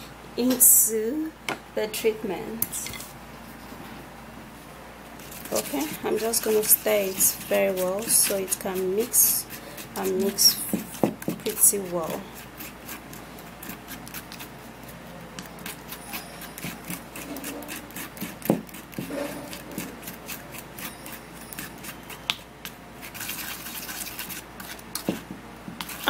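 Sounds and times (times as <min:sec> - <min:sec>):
plastic spoon stirring paste: 0:05.2 - 0:26.0.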